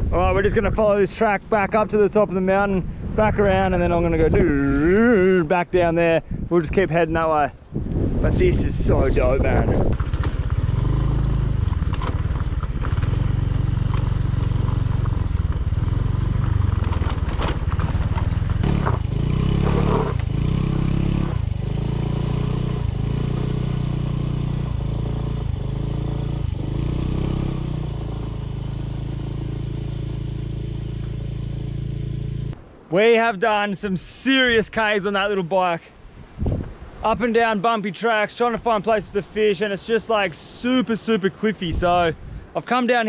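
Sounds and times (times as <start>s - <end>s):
small motorbike engine revving: 9.9s - 32.6s.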